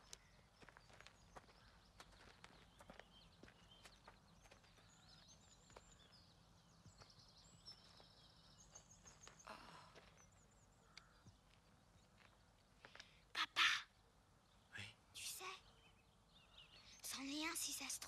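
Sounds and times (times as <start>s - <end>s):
steps on gravel: 0.0s - 6.1s
songbird chirps: 0.0s - 18.0s.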